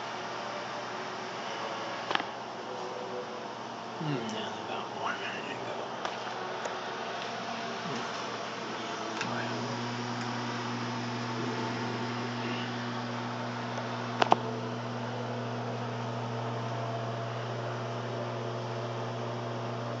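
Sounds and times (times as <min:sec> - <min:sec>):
microwave fan whir: 0:00.0 - 0:20.0
microwave low hum: 0:00.0 - 0:20.0.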